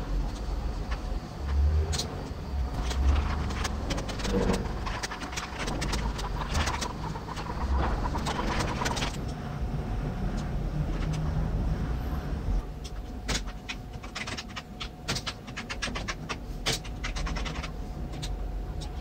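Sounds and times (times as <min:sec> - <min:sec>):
computer humming: 0:00.0 - 0:19.0
quick irregular clicks: 0:00.3 - 0:09.4, 0:12.8 - 0:19.0.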